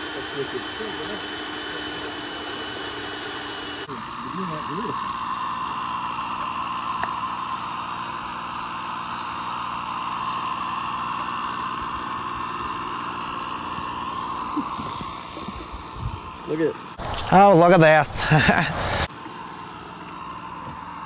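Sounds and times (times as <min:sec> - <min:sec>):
turbocharger blowing air into furnace: 0:00.0 - 0:19.6
jet-like rush of air and flame: 0:17.0 - 0:19.1.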